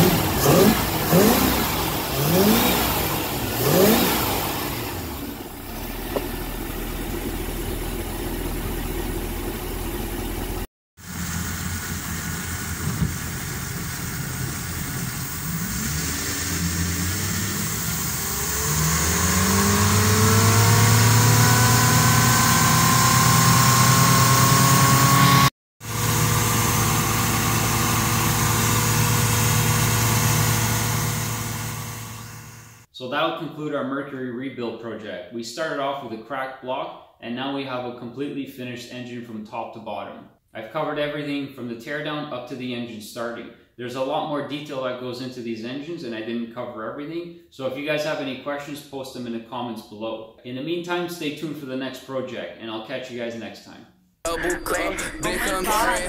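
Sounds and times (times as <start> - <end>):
boat engine running: 0.0 - 25.2.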